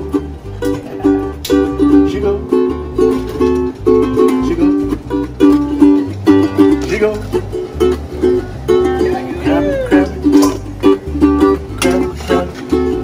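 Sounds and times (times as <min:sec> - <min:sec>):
low bass notes: 0:00.0 - 0:13.0
ukulele strumming: 0:00.0 - 0:13.0.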